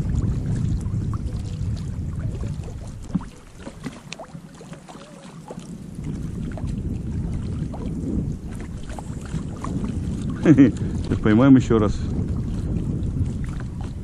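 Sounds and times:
low rumble: 0.0 - 3.8
oars splashing and knocking: 0.0 - 14.0
water lapping against inflatable boat: 0.0 - 14.0.

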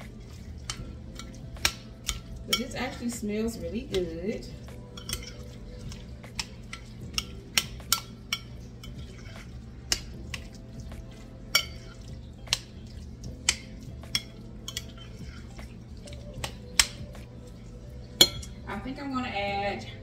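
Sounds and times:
steady low hum: 0.0 - 20.0
utensil clinking against glass dish: 0.6 - 3.2, 4.8 - 10.6, 11.5 - 17.6, 18.2 - 18.6.

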